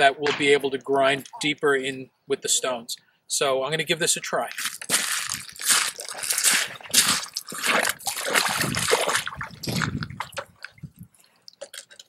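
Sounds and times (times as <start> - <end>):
footsteps splashing in water: 4.5 - 11.8
water dripping: 4.5 - 12.0.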